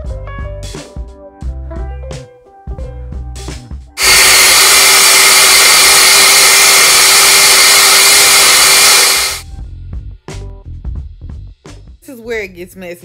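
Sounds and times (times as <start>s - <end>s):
blender running: 4.0s - 9.4s.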